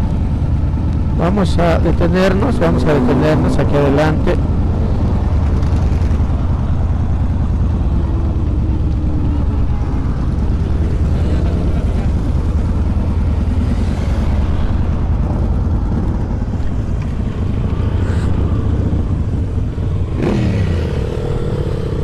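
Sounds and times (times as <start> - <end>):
motorcycle engines idling: 0.0 - 22.0
traffic passing: 0.0 - 22.0.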